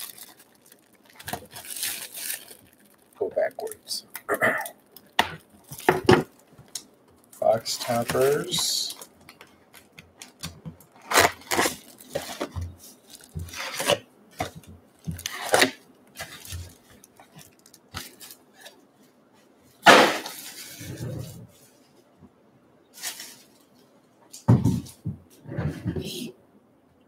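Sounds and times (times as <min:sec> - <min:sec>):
card packs crinkling: 0:00.0 - 0:18.8.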